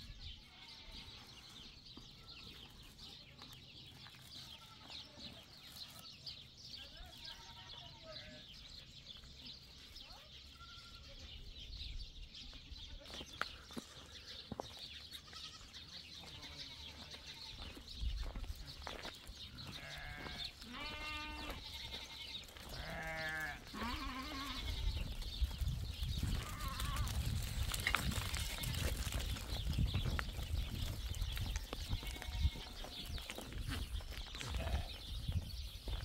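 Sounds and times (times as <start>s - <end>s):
goats bleating: 0.5s - 1.1s, 4.4s - 5.2s, 15.3s - 17.7s, 19.6s - 25.2s, 26.3s - 27.2s, 31.9s - 33.2s, 34.4s - 35.1s.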